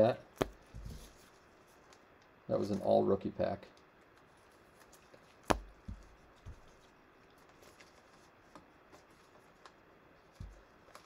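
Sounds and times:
trading cards handled on table: 0:03.7 - 0:11.0.

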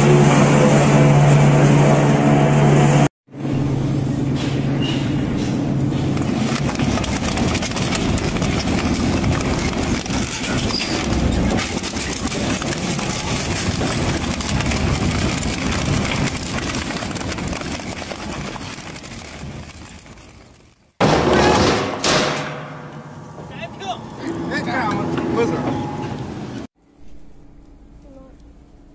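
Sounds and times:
shredder motor drone: 0:00.0 - 0:03.8
plastic and metal crunching: 0:05.8 - 0:22.7.

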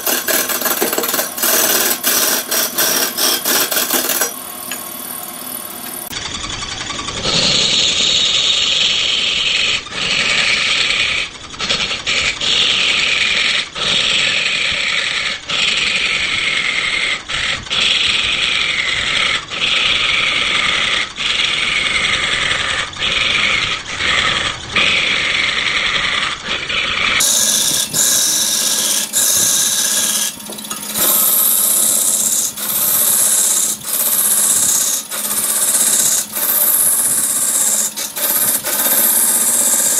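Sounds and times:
chisel scraping wood on a lathe: 0:00.0 - 0:06.2, 0:16.6 - 0:39.9.

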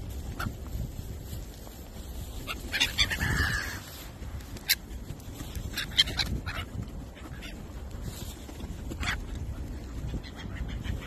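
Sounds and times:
wind rumble on microphone: 0:00.0 - 0:11.0
gulls calling: 0:02.2 - 0:11.0.

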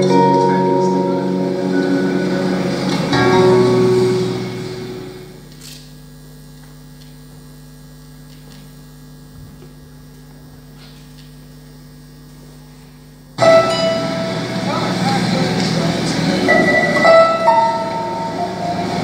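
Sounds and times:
music: 0:00.0 - 0:05.4, 0:13.4 - 0:19.0
electrical mains hum: 0:00.0 - 0:19.0.

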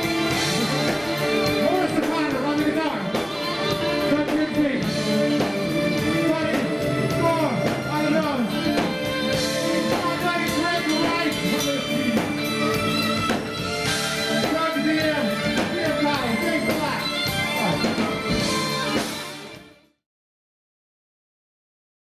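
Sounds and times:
live band playing: 0:00.0 - 0:20.0
man singing into microphone: 0:04.1 - 0:08.2.

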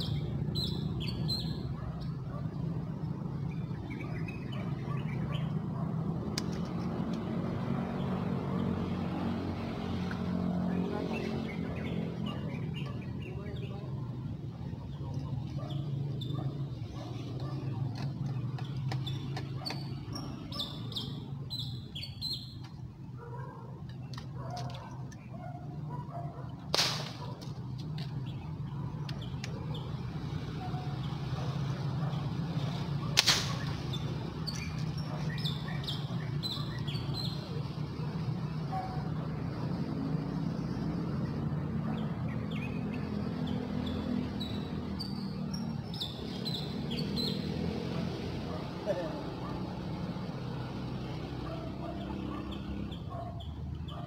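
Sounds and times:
small birds chirping: 0:00.0 - 0:26.5, 0:27.2 - 0:54.0
air rifle shot: 0:26.7 - 0:27.3, 0:33.2 - 0:33.8.

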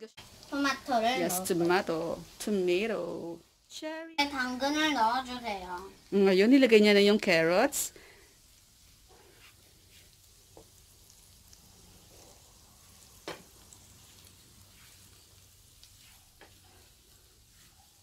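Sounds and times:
vegetables frying in butter: 0:00.0 - 0:18.0
wooden spatula scraping pan: 0:09.1 - 0:10.2, 0:14.7 - 0:18.0.

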